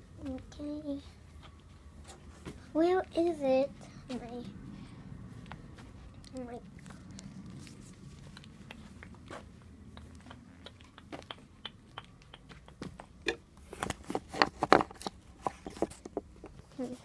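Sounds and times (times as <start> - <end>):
handling and rummaging noise: 12.8 - 17.0.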